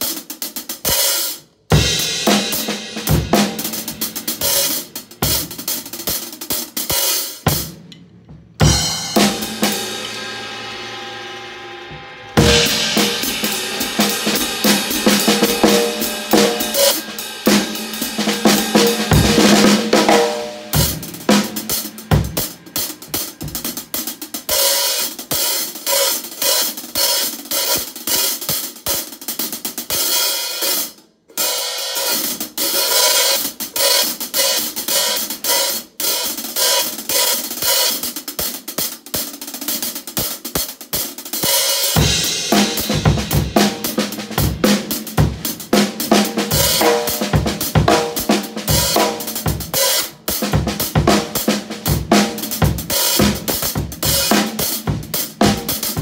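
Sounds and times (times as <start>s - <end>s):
hi-hats and snare groove: 0.0s - 56.0s
bass drum: 1.7s - 6.2s, 7.5s - 11.0s, 11.9s - 24.2s, 42.0s - 56.0s.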